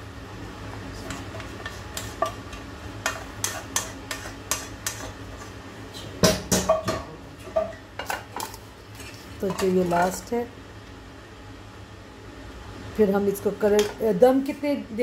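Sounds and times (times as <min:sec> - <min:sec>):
low steady hum: 0:00.0 - 0:15.0
metal spoon scraping pans: 0:01.0 - 0:05.6, 0:08.0 - 0:10.3.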